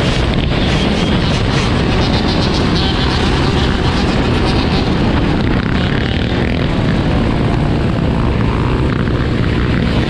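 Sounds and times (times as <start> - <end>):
dirt bike engines running: 0.0 - 10.0
wind noise on microphone: 0.0 - 10.0.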